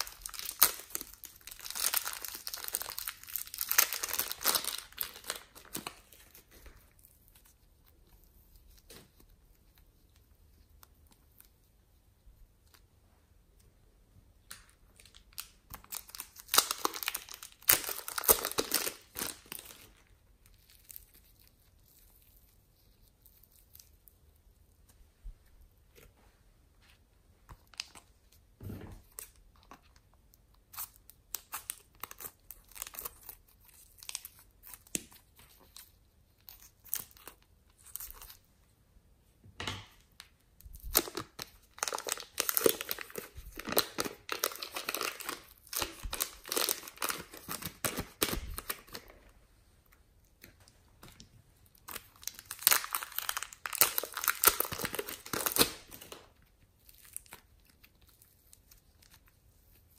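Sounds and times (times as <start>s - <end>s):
dense crinkling: 0.0s - 13.7s, 40.1s - 59.9s
foam clay clicks and crackles: 49.9s - 59.9s.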